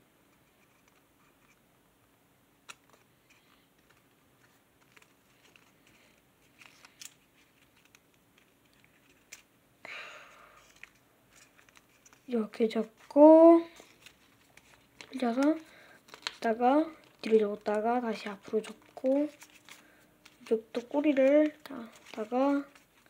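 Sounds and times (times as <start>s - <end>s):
paper rustling: 2.7s - 9.5s, 10.6s - 23.0s
paper folding clicks: 4.8s - 9.5s, 13.8s - 23.0s.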